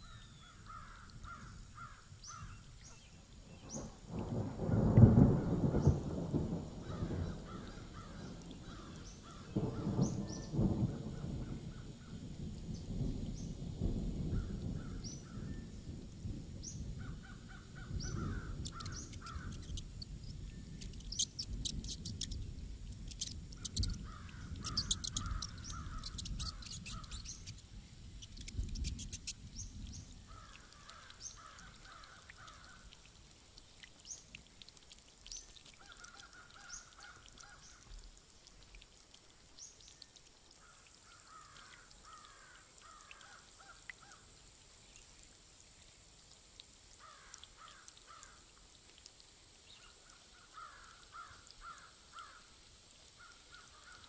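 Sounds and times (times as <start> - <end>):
crows cawing: 0.6 - 2.5, 6.9 - 9.6, 24.0 - 27.1, 30.3 - 32.8, 41.1 - 44.2, 47.0 - 48.4, 50.4 - 52.4
sharp clicks: 18.6 - 24.0, 24.6 - 29.4.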